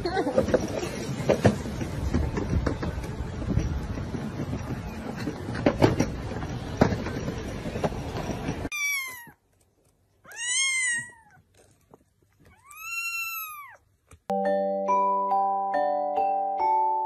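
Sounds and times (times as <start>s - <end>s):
kitten meowing: 8.7s - 9.4s, 10.3s - 11.4s, 12.4s - 13.8s
mallet instrument music: 14.3s - 17.0s.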